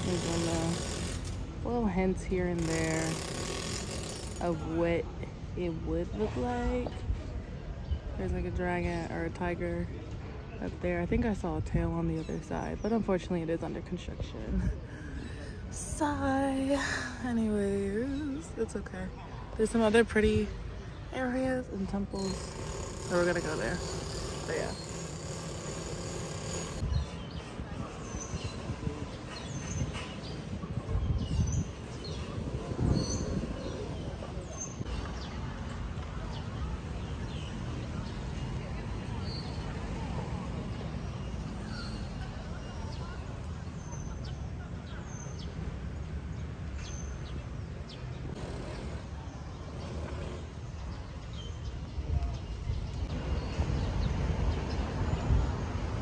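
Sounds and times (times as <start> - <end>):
small birds chirping: 18.0 - 56.0.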